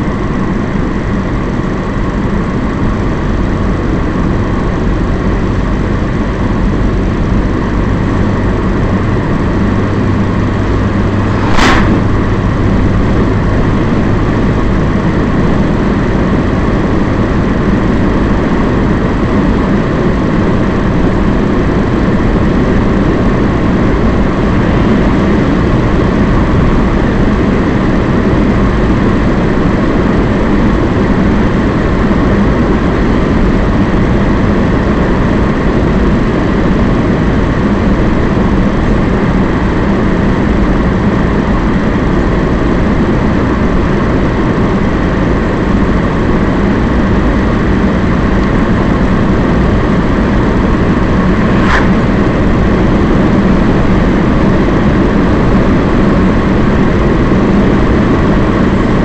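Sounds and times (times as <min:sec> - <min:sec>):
car engine and tyre noise: 0:10.3 - 0:21.5, 0:47.4 - 0:56.7.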